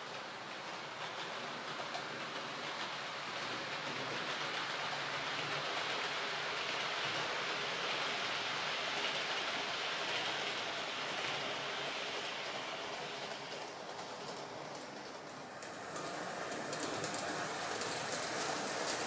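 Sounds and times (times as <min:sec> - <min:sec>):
model train running on track: 0:00.0 - 0:19.0.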